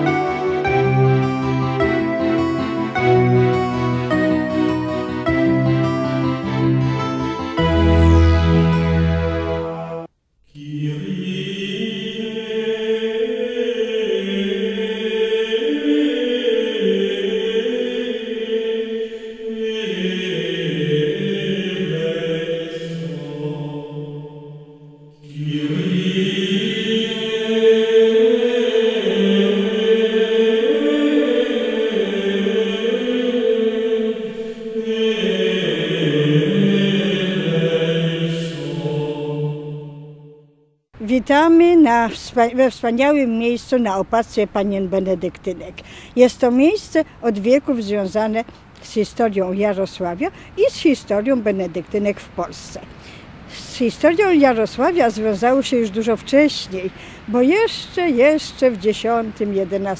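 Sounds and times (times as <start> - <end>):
voices singing slow chant: 0.0 - 6.5, 9.3 - 40.4
title music: 0.0 - 10.1.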